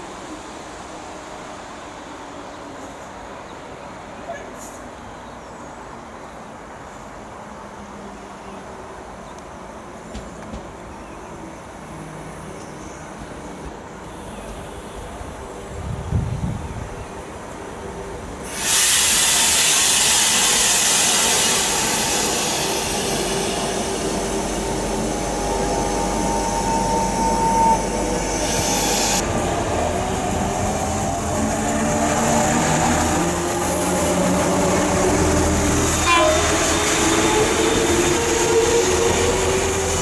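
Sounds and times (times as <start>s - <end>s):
train high whine: 17.3s - 40.0s
train wheels rushing past: 18.4s - 40.0s.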